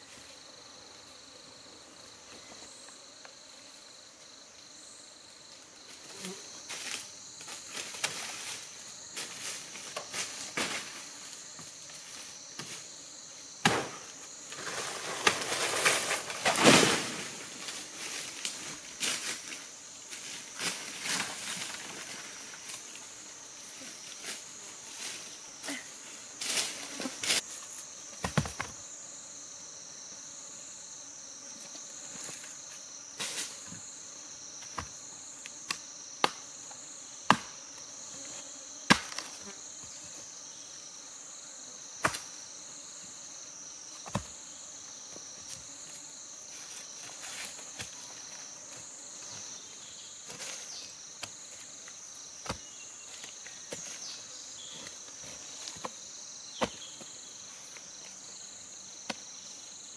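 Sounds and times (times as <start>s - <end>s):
insects droning: 0.0s - 59.9s
machete chopping bamboo: 13.6s - 14.0s, 35.7s - 36.4s, 37.3s - 37.6s, 38.9s - 39.3s.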